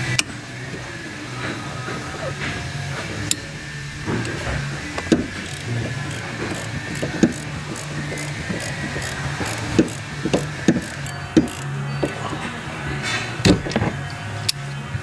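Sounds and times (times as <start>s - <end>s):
steady low hum: 0.0s - 15.0s
wrench clinking on metal: 5.0s - 12.2s
wrench ratchet ticking: 5.1s - 11.8s.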